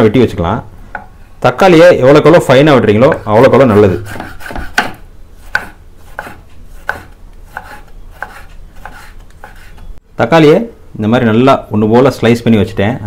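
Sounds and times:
knife slicing tomatoes on a board: 3.2 - 9.9.

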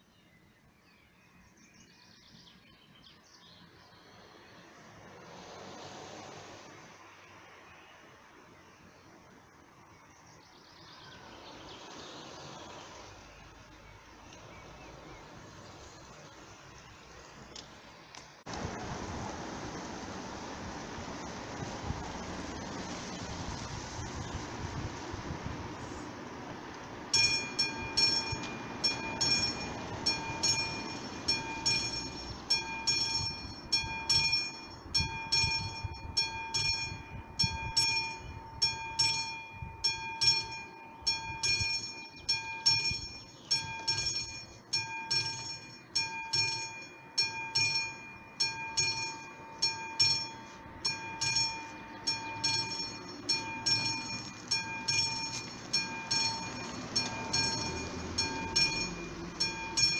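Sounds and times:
mechanical crossing bell ringing: 27.0 - 59.9.

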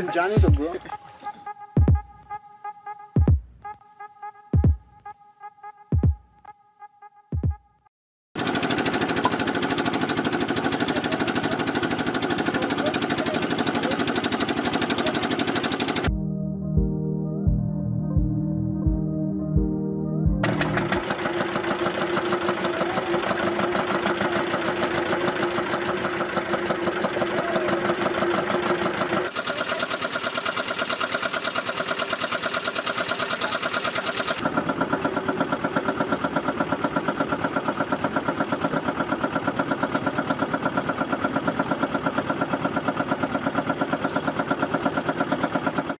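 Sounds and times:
boat engine chugging: 0.0 - 1.0, 8.4 - 16.1, 20.4 - 46.0.

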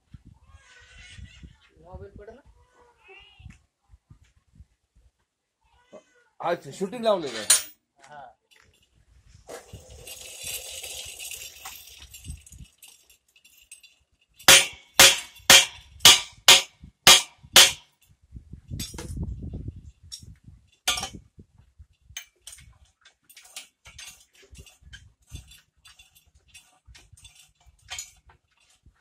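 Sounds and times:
metal-on-metal clanks: 7.2 - 7.8, 9.5 - 18.0, 18.8 - 19.2, 20.1 - 21.2, 22.2 - 28.8
metal clinking and rattling: 7.3 - 7.8, 8.5 - 18.1, 18.8 - 19.2, 20.0 - 21.2, 22.1 - 29.0.

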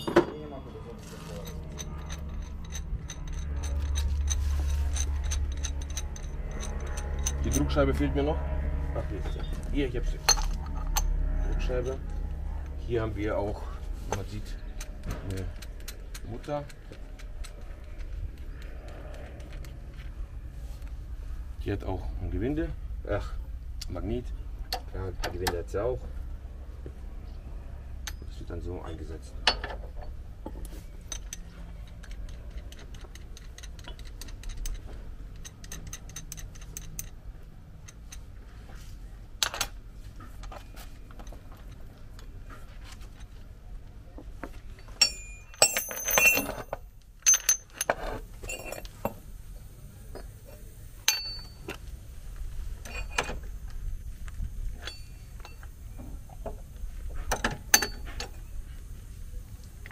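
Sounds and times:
metal parts clicking and clinking: 0.0 - 8.1, 9.4 - 19.8, 28.0 - 38.4, 39.4 - 43.4, 44.4 - 59.9
metal clattering on metal: 44.7 - 49.2.

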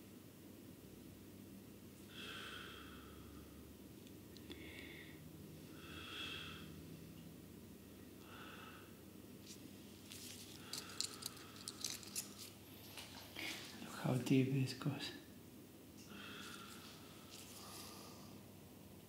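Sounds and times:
person breathing sharply through nose: 4.5 - 5.2, 10.5 - 12.3, 16.1 - 18.4.

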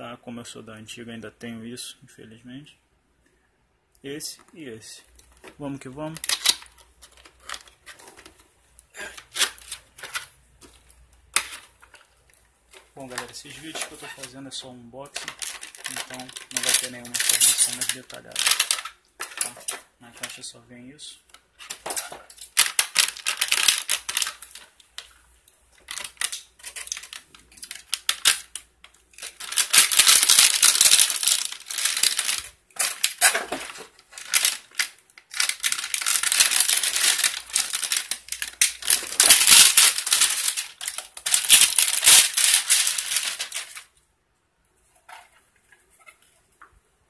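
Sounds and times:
plastic packaging crinkling: 5.0 - 20.6, 21.2 - 44.0
handling clicks and knocks: 25.8 - 43.8.

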